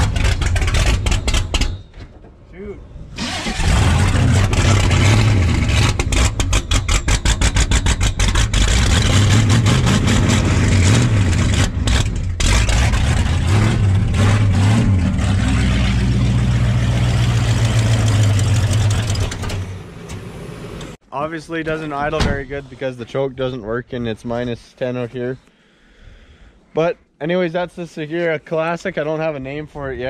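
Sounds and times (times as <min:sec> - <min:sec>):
engine starting and idling rough: 0:00.0 - 0:01.9, 0:03.1 - 0:21.0.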